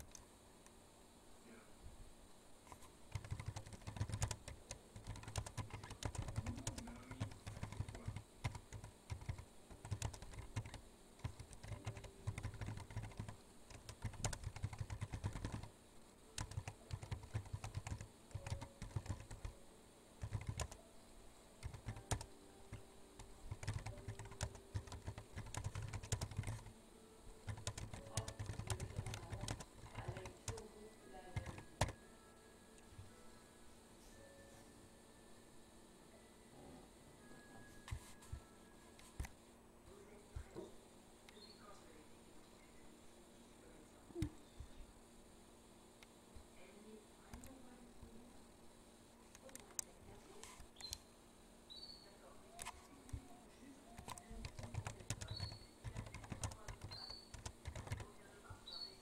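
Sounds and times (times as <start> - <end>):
typing on computer keyboard: 2.7 - 15.7, 16.4 - 19.5, 20.2 - 20.8, 21.6 - 26.7, 27.4 - 30.7, 31.3 - 32.0, 53.9 - 58.2.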